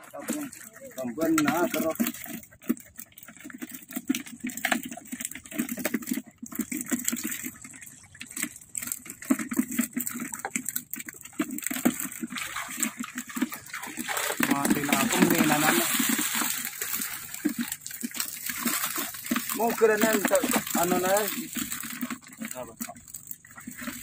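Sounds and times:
hand net splashing through water: 0:11.5 - 0:24.0.

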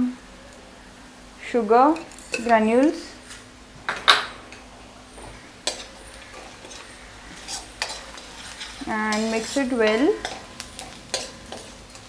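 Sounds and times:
spoon scraping a metal wok: 0:02.0 - 0:02.6, 0:05.6 - 0:12.0.

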